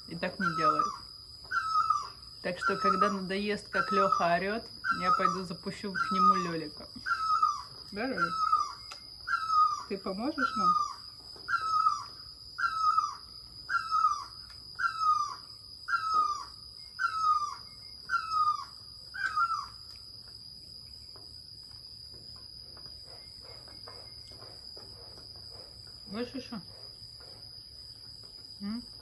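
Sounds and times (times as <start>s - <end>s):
bird squawking: 0.4s - 3.2s, 3.8s - 19.7s.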